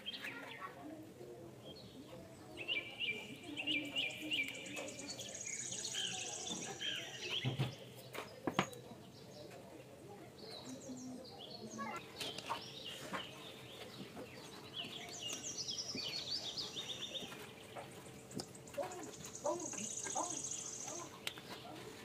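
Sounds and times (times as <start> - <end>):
birds chirping: 1.6 - 22.0.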